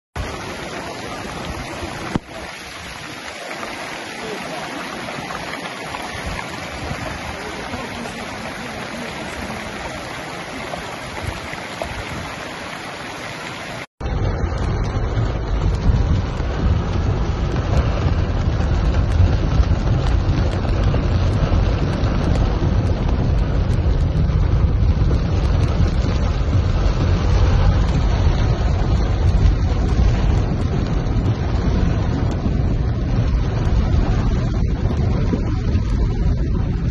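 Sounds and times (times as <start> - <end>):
floodwater rushing: 0.2 - 36.9
heavy rain beating on a car: 0.2 - 36.9
deep rumble: 14.0 - 36.9.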